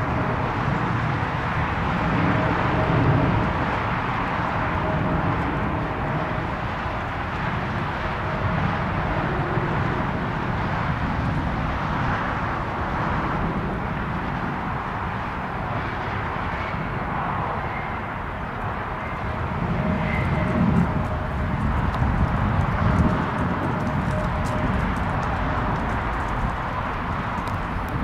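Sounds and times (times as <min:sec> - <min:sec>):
airliner engine rumble: 0:00.0 - 0:28.0.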